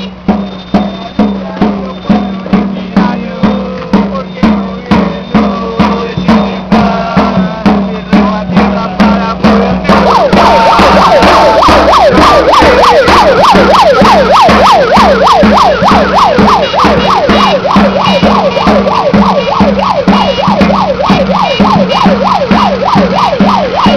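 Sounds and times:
drums beating: 0.0s - 23.9s
siren yelping: 9.0s - 23.9s.

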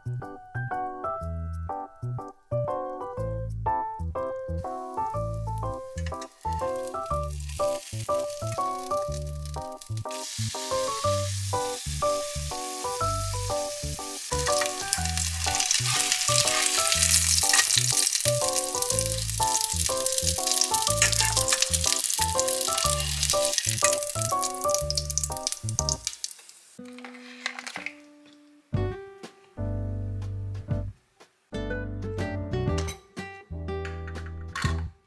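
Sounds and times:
food sizzling in a frying pan: 4.6s - 28.0s.

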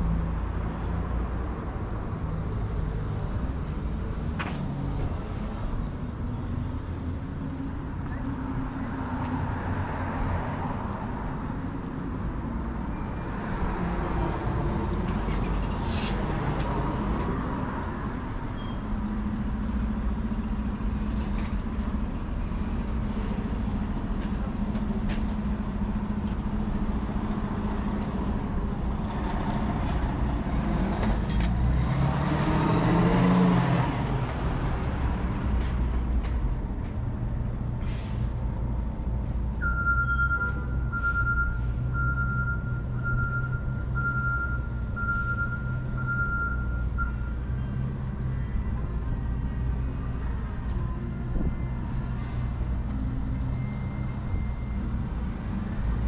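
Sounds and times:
vehicle accelerating past: 30.6s - 34.4s
steady high-pitched beep: 39.6s - 47.4s.

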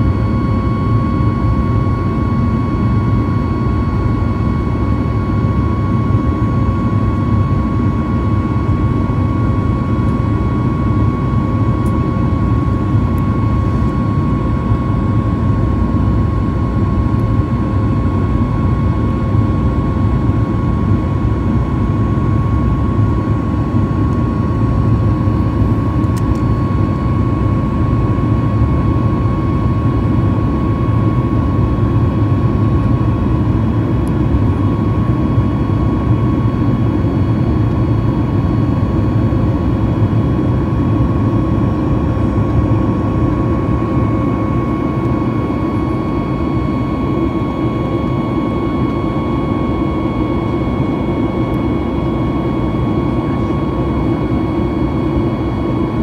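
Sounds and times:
jet engine rumble: 0.0s - 56.0s
steady whine: 0.0s - 56.0s.

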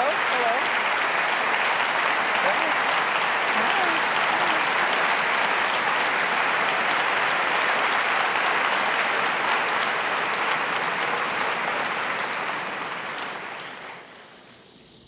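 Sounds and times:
audience applauding: 0.0s - 14.5s.

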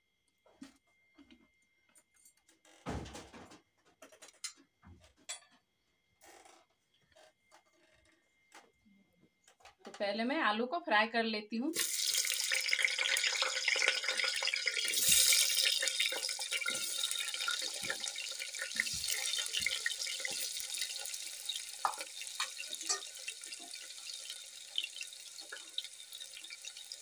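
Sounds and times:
oil popping and crackling: 11.8s - 27.0s
potatoes sizzling in hot oil: 11.8s - 27.0s.

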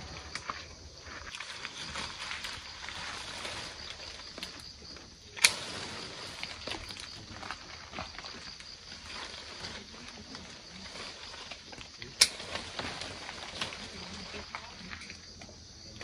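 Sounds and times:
tree branches and leaves rustling: 0.0s - 16.0s
twig clicks: 11.7s - 13.9s
twig snapping: 12.1s - 12.6s.

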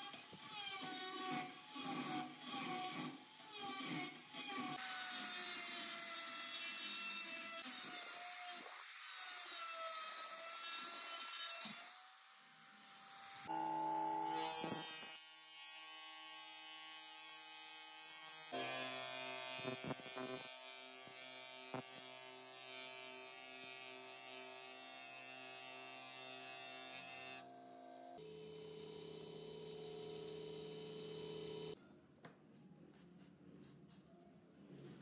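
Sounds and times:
power grinder grinding steel: 0.0s - 31.8s
polishing motor hum: 25.9s - 31.8s.

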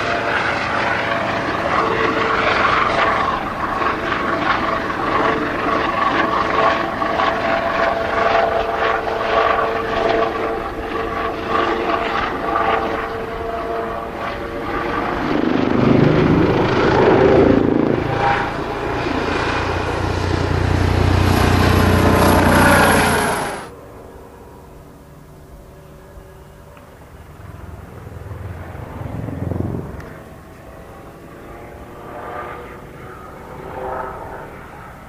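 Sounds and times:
helicopter rotor noise: 0.0s - 35.0s
helicopter whine: 0.0s - 35.0s.

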